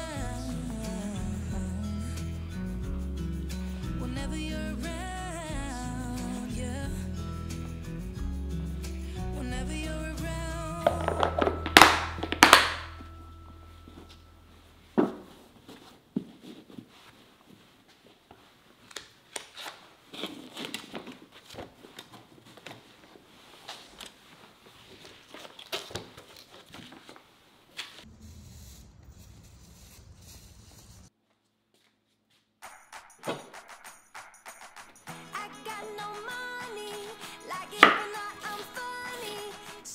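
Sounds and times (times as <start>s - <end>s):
cloth rustling: 13.8s - 28.1s
light crinkling: 15.2s - 31.1s.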